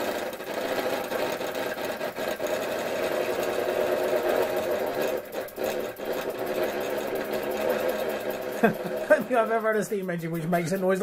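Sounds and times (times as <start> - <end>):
toy steam engine rattling: 0.0 - 11.0.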